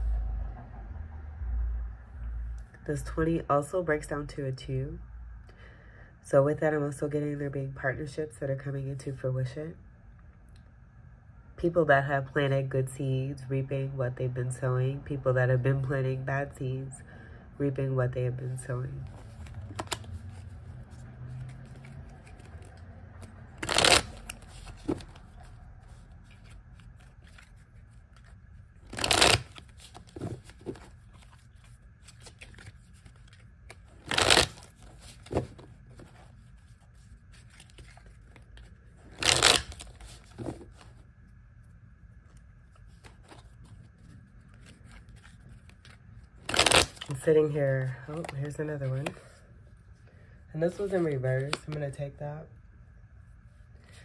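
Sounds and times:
cards riffling: 0:19.1 - 0:40.9, 0:42.7 - 0:47.2.

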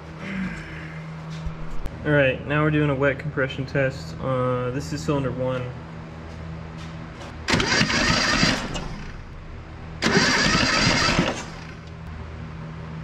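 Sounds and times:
starter motor cranking engine: 0:07.4 - 0:09.4, 0:10.0 - 0:12.0.

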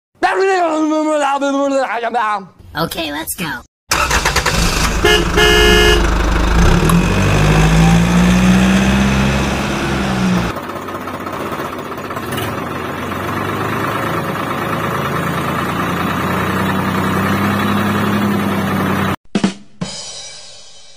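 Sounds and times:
tractor engine running: 0:03.9 - 0:19.2.

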